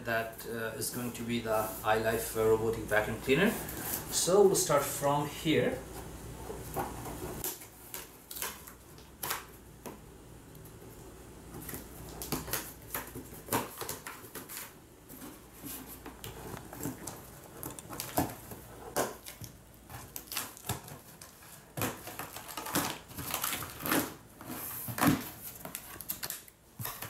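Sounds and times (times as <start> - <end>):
scissors cutting packing tape: 25.0 - 27.0.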